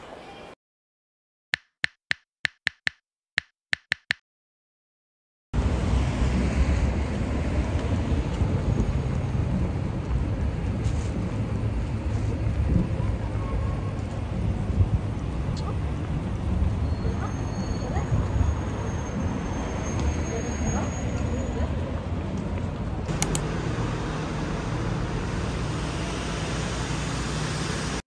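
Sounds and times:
street noise: 0:05.6 - 0:28.0
wind buffeting microphone: 0:06.1 - 0:11.3, 0:12.3 - 0:13.4, 0:14.2 - 0:17.2.

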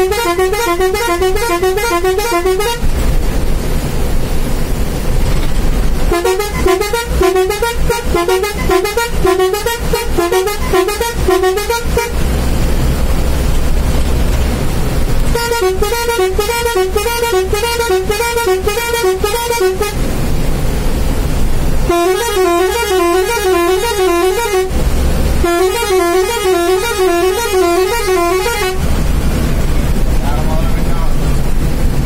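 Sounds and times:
warbling bus air horn: 0:00.0 - 0:02.9, 0:06.1 - 0:12.3, 0:15.3 - 0:20.1, 0:21.8 - 0:29.0
low engine rumble: 0:00.0 - 0:32.0.

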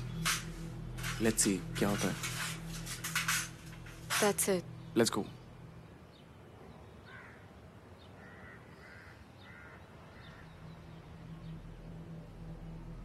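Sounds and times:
crow cawing faintly: 0:07.0 - 0:10.7.

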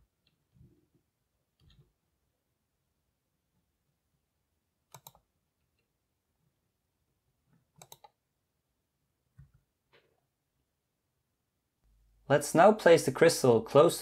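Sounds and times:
computer mouse clicks: 0:04.9 - 0:05.9, 0:07.6 - 0:08.2.

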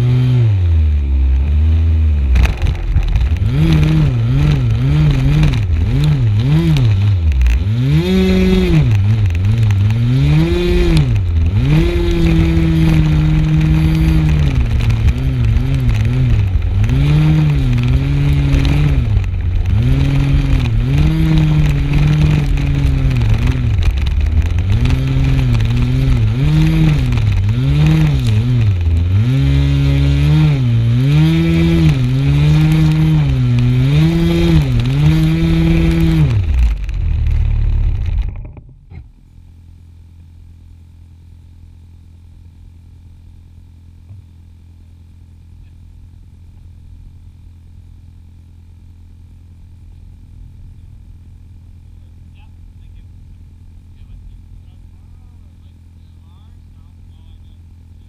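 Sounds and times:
model plane engine at high revs: 0:03.4 - 0:36.6.

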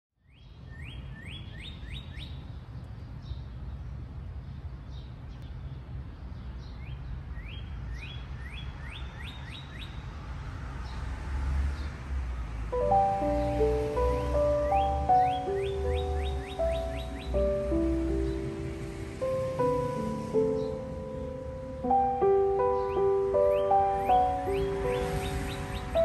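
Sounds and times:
cardinal singing whistled notes: 0:12.8 - 0:18.5, 0:19.6 - 0:26.0.

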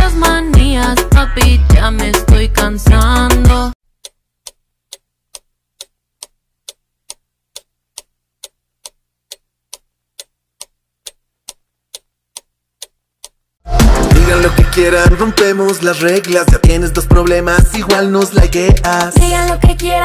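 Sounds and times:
clock ticking: 0:04.0 - 0:13.4, 0:14.1 - 0:19.8
song: 0:13.7 - 0:20.0.

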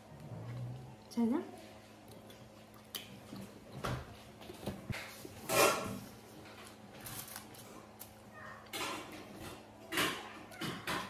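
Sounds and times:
chewing and lip smacks: 0:02.0 - 0:04.5.

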